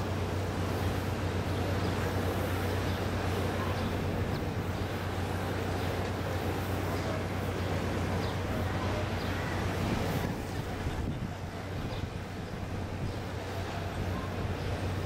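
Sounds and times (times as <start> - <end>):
outdoor background noise: 0.0 - 15.0
ship machinery humming: 0.0 - 15.0.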